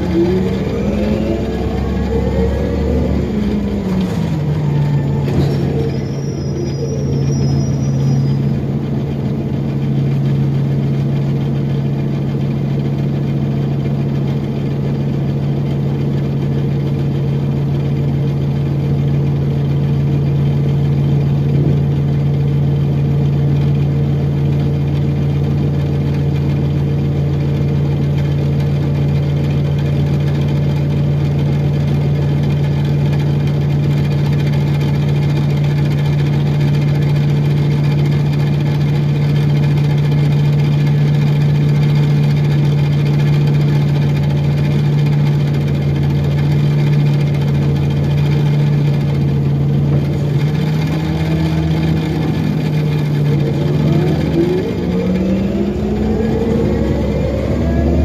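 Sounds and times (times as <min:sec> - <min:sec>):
bus interior low hum: 0:00.0 - 0:58.0.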